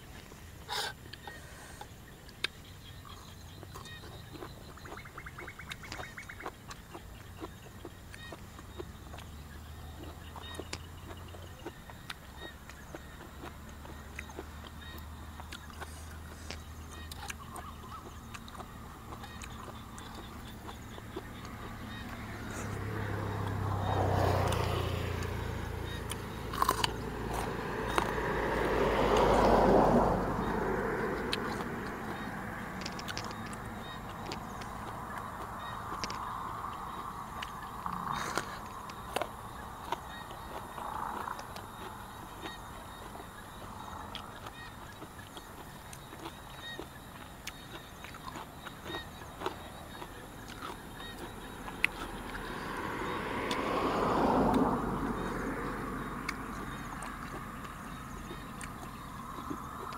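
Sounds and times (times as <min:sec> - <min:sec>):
biting and chewing: 0:00.0 - 0:59.9
frogs calling: 0:00.0 - 0:59.9
sharp crunches: 0:25.9 - 0:28.1.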